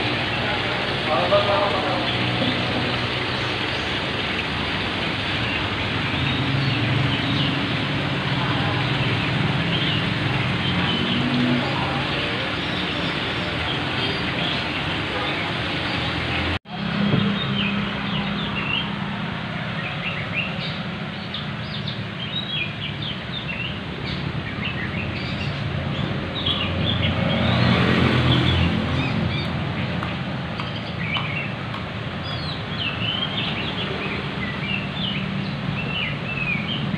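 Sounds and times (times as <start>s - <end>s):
traffic rumble: 0.0s - 36.9s
small birds chirping: 19.6s - 36.9s.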